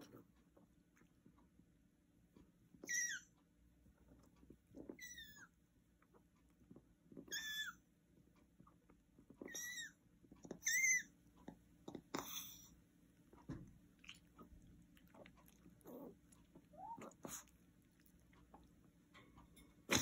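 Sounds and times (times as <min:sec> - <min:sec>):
dog high squeaky sound: 0:02.8 - 0:03.3, 0:07.3 - 0:07.8, 0:10.6 - 0:11.1
dog lapping water: 0:13.7 - 0:19.0.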